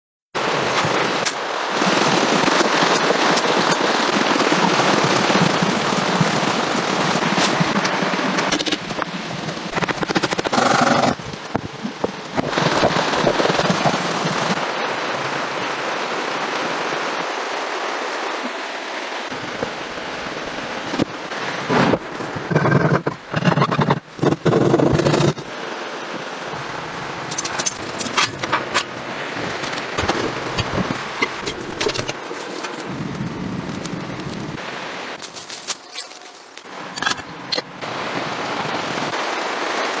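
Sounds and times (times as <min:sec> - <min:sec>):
rapid crackling and rattling: 0:00.4 - 0:14.7, 0:19.3 - 0:25.7, 0:26.3 - 0:38.1
fire crackling: 0:26.4 - 0:39.2.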